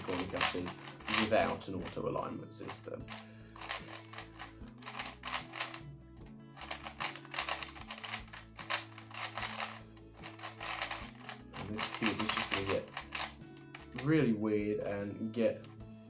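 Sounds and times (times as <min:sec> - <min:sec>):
puzzle cube turning clatter: 0:00.0 - 0:02.0, 0:02.7 - 0:05.8, 0:06.6 - 0:14.1.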